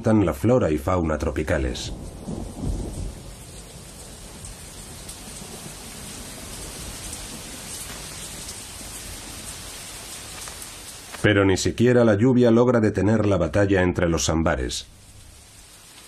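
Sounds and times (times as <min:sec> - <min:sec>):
heavy rain falling: 0:00.2 - 0:11.8, 0:13.2 - 0:16.0
low rumble of thunder: 0:01.0 - 0:10.2.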